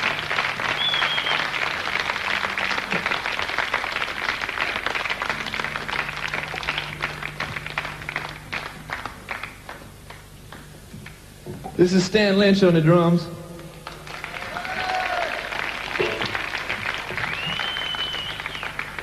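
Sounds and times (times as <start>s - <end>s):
audience applauding: 0.0s - 11.4s, 13.6s - 19.0s
low steady hum: 0.0s - 19.0s.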